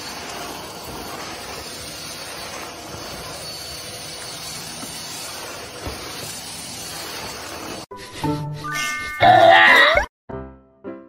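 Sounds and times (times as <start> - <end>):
vacuum cleaner running: 0.0 - 7.9.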